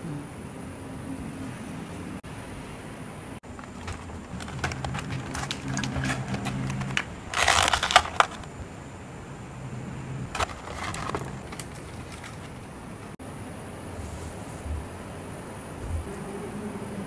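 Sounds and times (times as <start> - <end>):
plastic packaging crinkling: 3.5 - 8.6, 10.3 - 12.7.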